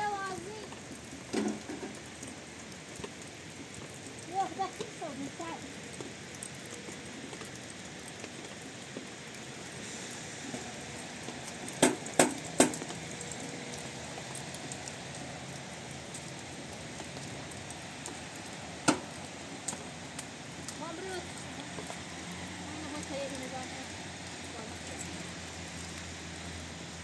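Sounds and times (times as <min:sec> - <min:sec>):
steady rain falling: 0:00.0 - 0:27.0
sharp knocks: 0:11.8 - 0:12.8.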